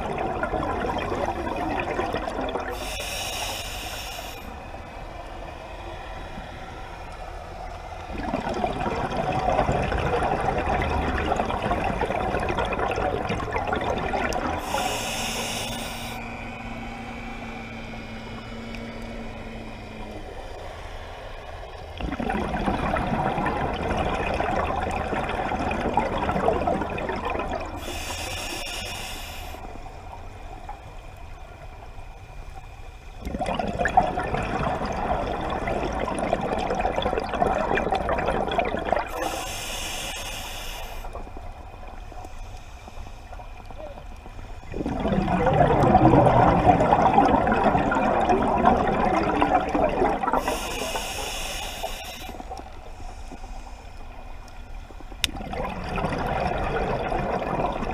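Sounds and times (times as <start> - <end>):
bubbling underwater exhalations: 0.0 - 2.9, 8.1 - 15.0, 22.0 - 28.0, 33.2 - 39.4, 44.6 - 51.2, 55.2 - 57.9
regulator hissing inhalation: 2.8 - 4.6, 14.6 - 16.4, 27.8 - 29.7, 39.1 - 41.2, 50.4 - 54.0.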